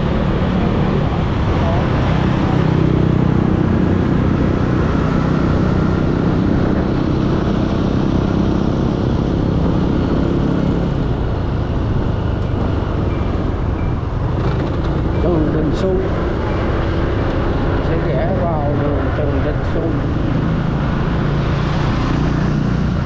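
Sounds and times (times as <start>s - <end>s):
road noise: 0.0s - 23.0s
scooter engine humming: 0.0s - 23.0s.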